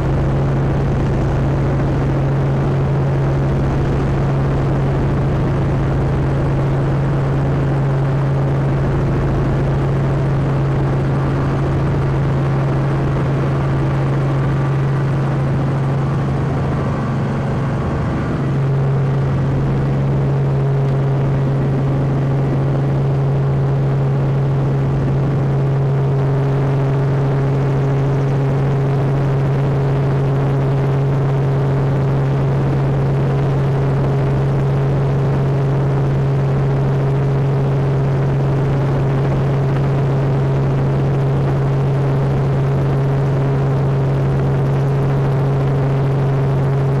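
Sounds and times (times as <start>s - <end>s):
helicopter engine and rotor drone: 0.0s - 47.0s.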